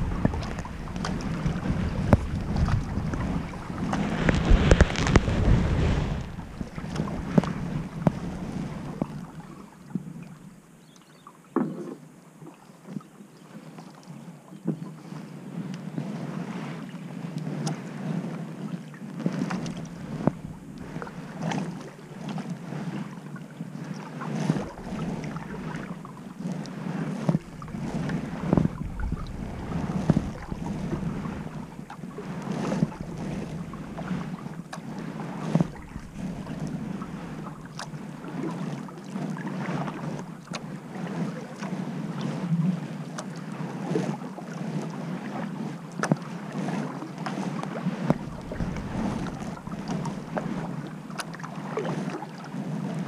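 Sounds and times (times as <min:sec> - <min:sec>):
short splashes and knocks: 0:00.0 - 0:10.1, 0:24.4 - 0:41.7, 0:46.0 - 0:52.4
wind on microphone: 0:00.0 - 0:10.6, 0:14.6 - 0:53.0
paddle strokes in water: 0:00.0 - 0:53.0.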